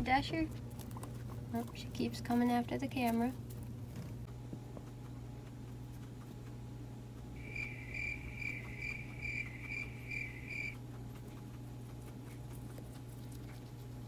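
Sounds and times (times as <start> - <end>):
guinea pig pulsing call: 4.8 - 14.0.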